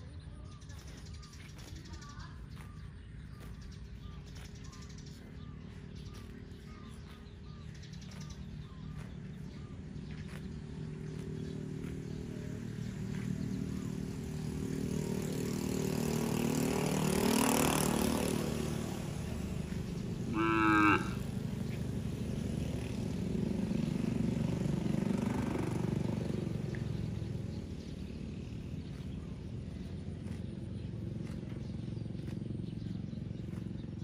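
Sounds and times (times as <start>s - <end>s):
cattle mooing: 20.3s - 21.3s.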